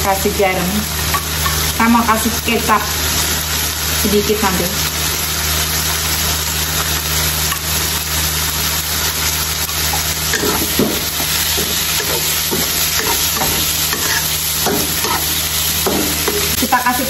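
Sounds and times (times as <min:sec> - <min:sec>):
squid sizzling in a wok: 0:00.0 - 0:17.0
wooden spatula scraping a wok: 0:09.9 - 0:16.6.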